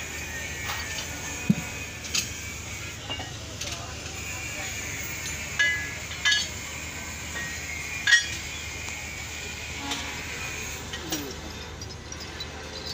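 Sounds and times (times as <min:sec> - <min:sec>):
steel tools clinking on metal: 0:05.0 - 0:06.6, 0:07.3 - 0:08.6, 0:10.6 - 0:12.9.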